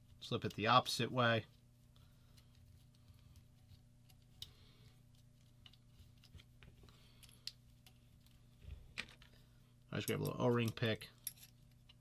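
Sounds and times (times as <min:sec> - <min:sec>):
steady low hum: 0:00.0 - 0:12.0
small parts clicking and rattling: 0:04.0 - 0:09.4.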